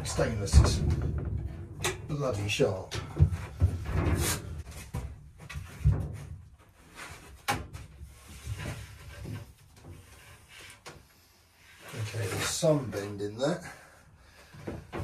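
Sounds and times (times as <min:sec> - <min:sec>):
steel sheet knocking and thudding: 0:00.0 - 0:06.3.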